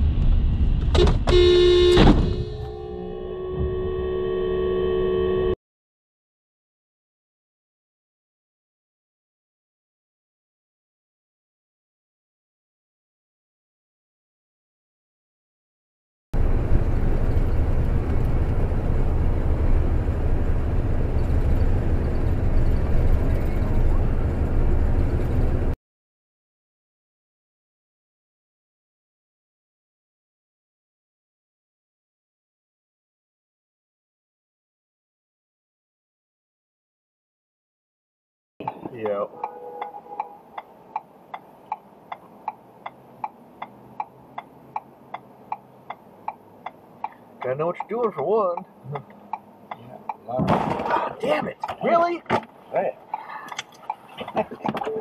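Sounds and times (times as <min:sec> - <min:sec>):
road noise: 0:00.0 - 0:05.6, 0:16.4 - 0:25.8, 0:38.6 - 0:55.0
truck engine rumble: 0:16.4 - 0:25.8.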